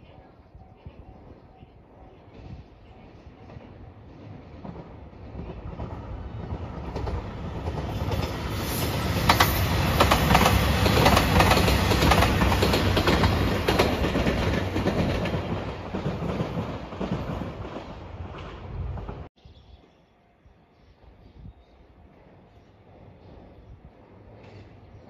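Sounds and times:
train wheels clicking over rail joints: 0:04.3 - 0:19.3, 0:24.0 - 0:25.0.

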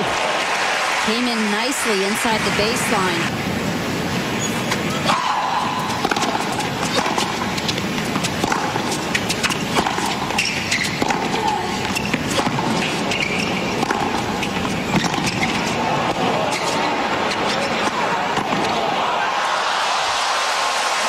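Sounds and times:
crowd background: 0:00.0 - 0:21.0
broadcast hiss: 0:01.2 - 0:04.9
racket striking tennis ball: 0:05.8 - 0:16.8.

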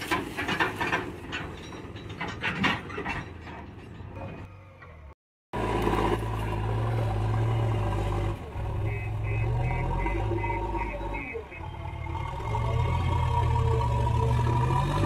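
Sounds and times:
diesel engine droning: 0:04.2 - 0:15.0.

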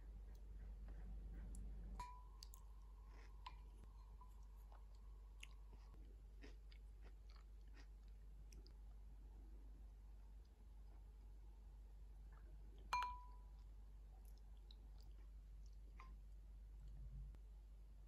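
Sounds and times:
faint steady tone: 0:00.0 - 0:06.2, 0:08.2 - 0:18.0
chewing crunchy vegetables: 0:00.2 - 0:08.9.

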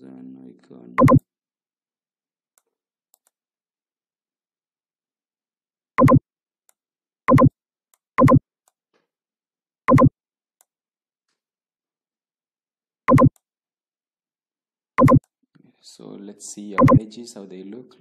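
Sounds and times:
electronic alert tones: 0:01.0 - 0:01.2, 0:06.0 - 0:06.2, 0:08.2 - 0:08.4, 0:09.9 - 0:10.1, 0:13.1 - 0:13.3, 0:15.0 - 0:15.2, 0:16.8 - 0:17.0.

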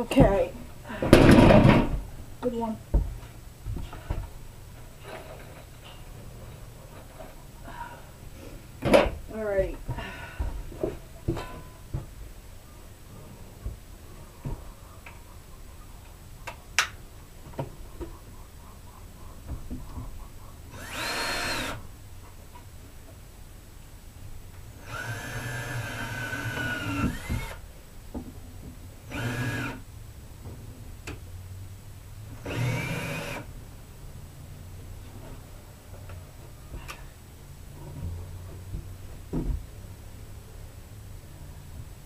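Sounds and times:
drill driving screws into wood: 0:20.7 - 0:21.8, 0:24.8 - 0:27.6, 0:29.1 - 0:29.8, 0:32.4 - 0:33.5.

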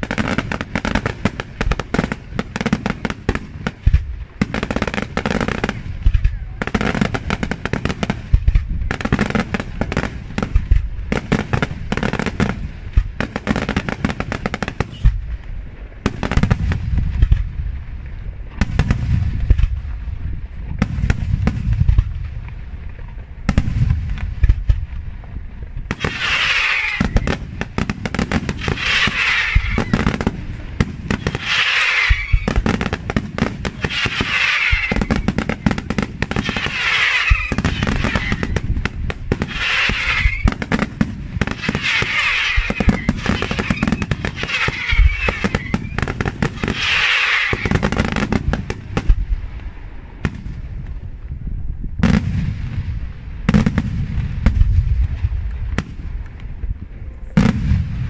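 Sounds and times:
fireworks bursts and bangs: 0:00.0 - 0:51.2, 0:52.0 - 0:56.8, 0:57.4 - 0:58.0
fireworks crackling hiss: 0:00.0 - 0:56.8.

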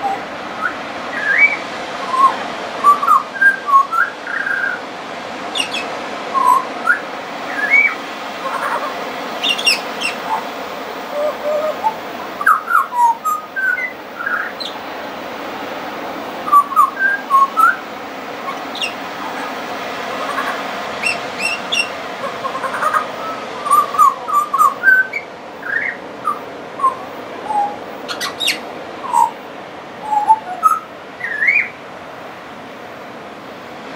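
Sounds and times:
bird singing whistled notes: 0:00.0 - 0:04.8, 0:05.5 - 0:10.5, 0:11.1 - 0:14.8, 0:16.4 - 0:17.8, 0:18.4 - 0:19.6, 0:20.2 - 0:29.4, 0:30.0 - 0:31.8.

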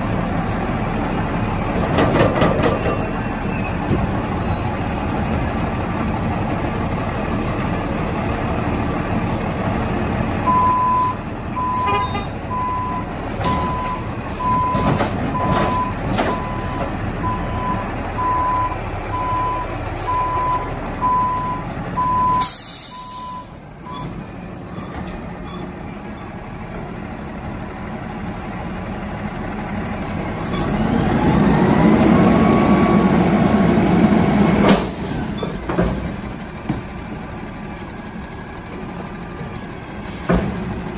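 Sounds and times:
diesel engine running: 0:00.0 - 0:40.9
reversing alarm beeping: 0:10.4 - 0:24.1
air brakes hissing: 0:22.4 - 0:23.3.

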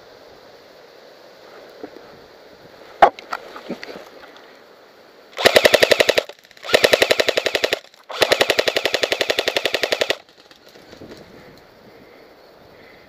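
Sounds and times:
airsoft rifle full-auto bursts: 0:05.4 - 0:10.5.

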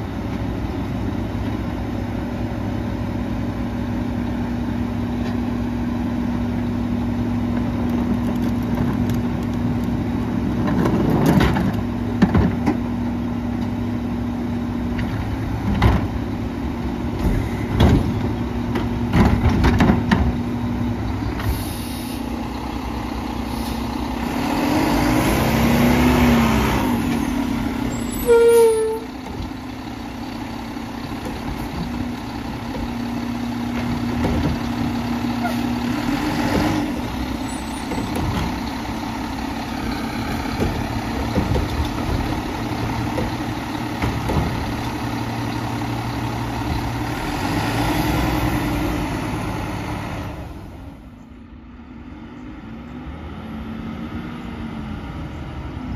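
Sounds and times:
air brake hiss: 0:21.4 - 0:22.4, 0:23.4 - 0:24.0
garbage truck engine idling: 0:27.4 - 0:36.0, 0:37.0 - 0:47.4.

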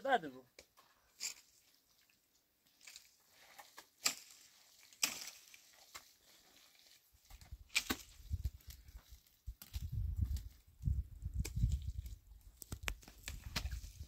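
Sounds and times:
mud mortar scraping and slapping: 0:11.4 - 0:14.0.

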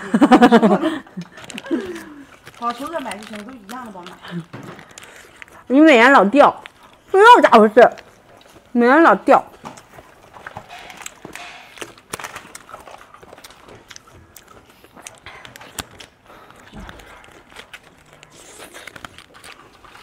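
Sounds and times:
biting and chewing: 0:01.1 - 0:08.7, 0:09.6 - 0:20.0
plastic packet crinkling: 0:01.2 - 0:05.8, 0:09.8 - 0:20.0.

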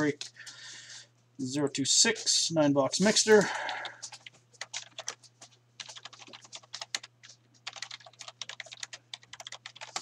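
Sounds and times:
keyboard typing: 0:03.4 - 0:10.0.

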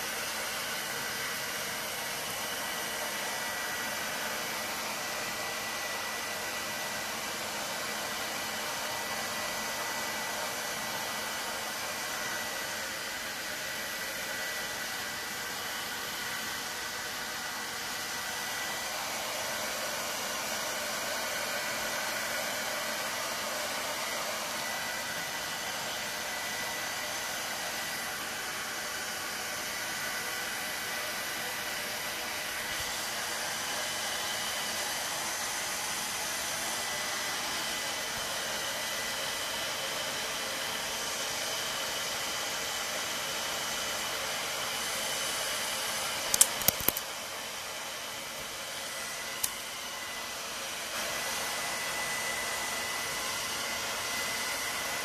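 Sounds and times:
hair dryer running: 0:00.0 - 0:55.0
sharp clicks: 0:46.3 - 0:47.0.

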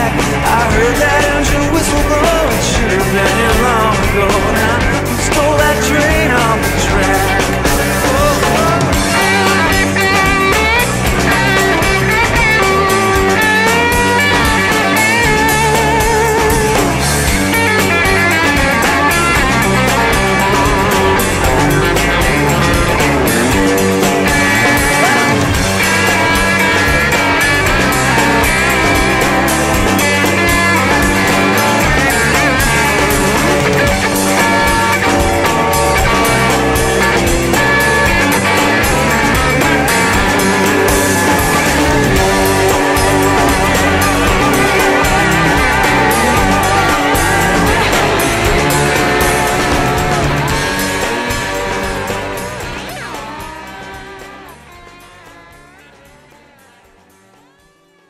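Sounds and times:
rock music with guitars and drums: 0:00.0 - 0:58.0.

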